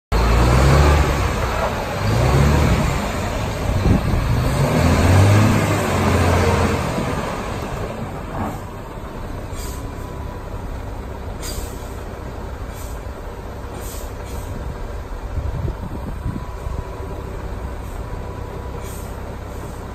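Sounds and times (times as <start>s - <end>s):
diesel truck engine pulling away: 0.1s - 19.9s
short air hisses: 9.5s - 10.0s, 11.4s - 12.0s, 12.7s - 13.0s, 13.8s - 14.6s, 18.8s - 19.9s.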